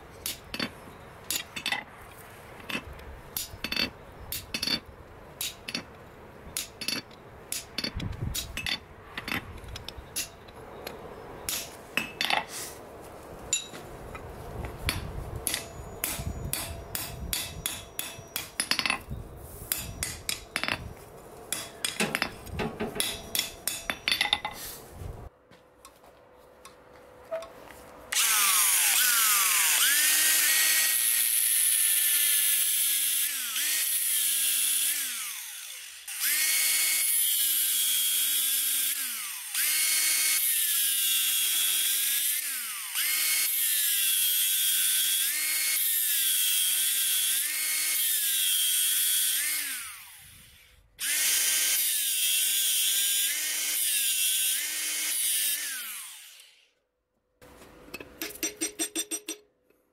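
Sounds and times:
angle grinder cutting steel: 28.1s - 56.7s.

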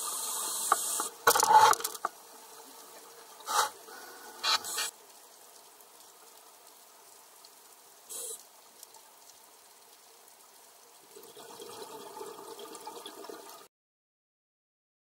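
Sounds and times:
underwater watery hiss: 0.0s - 1.7s, 2.7s - 4.9s, 8.1s - 8.4s.

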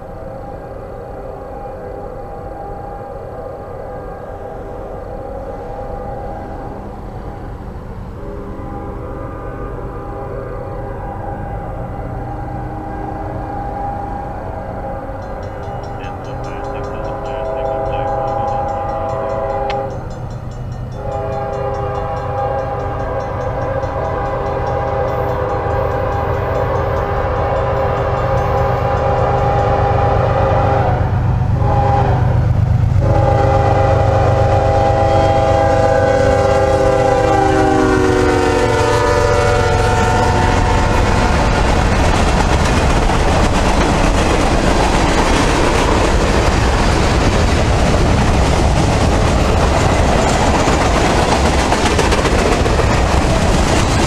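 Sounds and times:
diesel locomotive rumble: 0.0s - 54.0s
locomotive horn blasts: 0.1s - 7.6s, 8.2s - 20.0s, 20.9s - 32.4s, 33.0s - 42.1s
freight cars clickety-clack: 15.2s - 29.8s, 40.5s - 54.0s.

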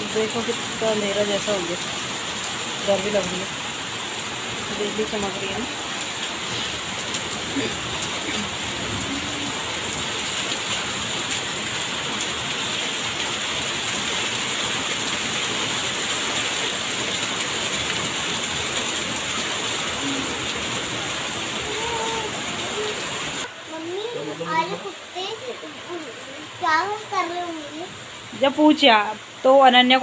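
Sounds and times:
heavy rain splashing on pavement: 0.0s - 30.0s.

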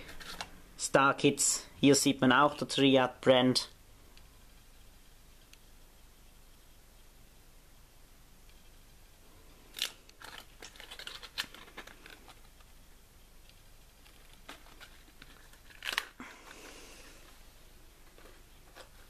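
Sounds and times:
packaging rustle: 9.7s - 12.7s, 14.0s - 17.2s
plastic crinkling: 9.7s - 12.7s, 14.0s - 17.3s.

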